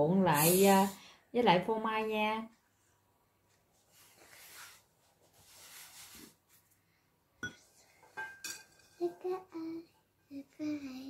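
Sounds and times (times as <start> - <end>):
hand brushing flour on wood: 4.0 - 6.4
child's voice: 9.0 - 11.0.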